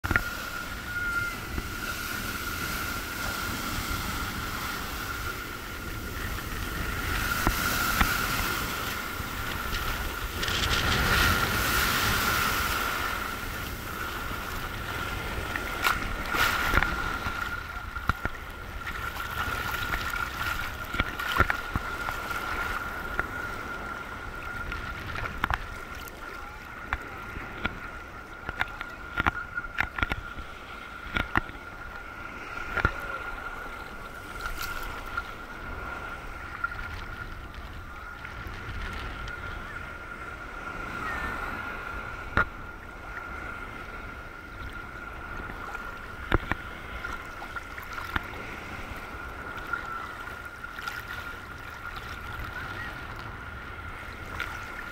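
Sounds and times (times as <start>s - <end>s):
thin high tone: 0.0s - 9.3s
water splashes: 0.0s - 54.9s
waves breaking on a beach: 0.0s - 54.9s.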